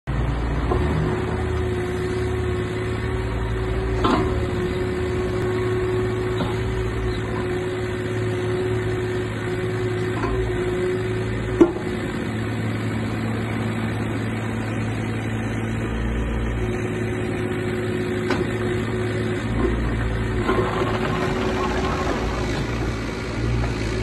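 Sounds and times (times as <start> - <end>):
diesel engine running: 0.1 - 24.0
hydraulic whine: 19.6 - 24.0.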